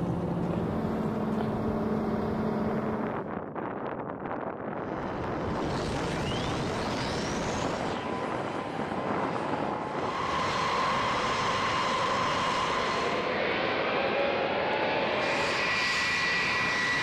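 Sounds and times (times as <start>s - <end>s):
jet engines starting up: 0.0s - 3.4s, 4.6s - 17.0s
turbine whine: 0.0s - 17.0s.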